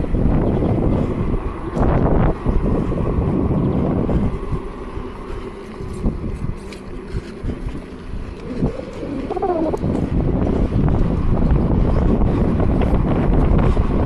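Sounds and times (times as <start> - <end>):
wind buffeting microphone: 0.0 - 14.0
wavering pitched call: 8.4 - 9.9
low rumble with knocks: 9.7 - 14.0.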